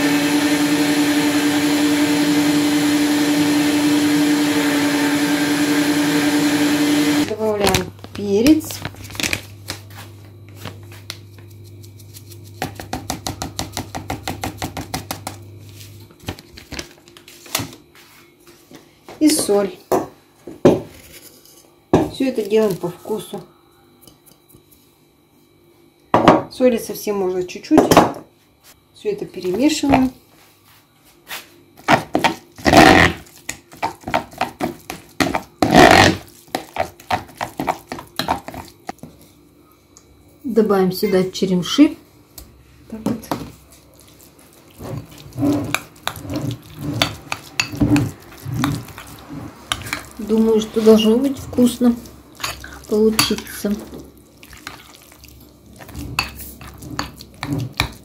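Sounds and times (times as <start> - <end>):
spoon scraping bowl: 44.0 - 58.0.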